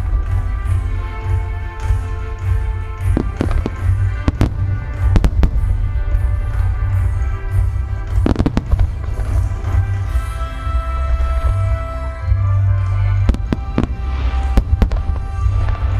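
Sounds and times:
music: 0.0s - 15.9s
sharp firework cracks: 1.8s - 10.1s
firework booms rumbling: 2.4s - 10.1s, 13.2s - 15.9s.

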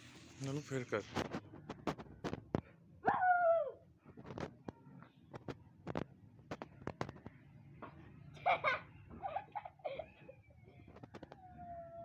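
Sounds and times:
puppy whining: 9.2s - 12.0s.

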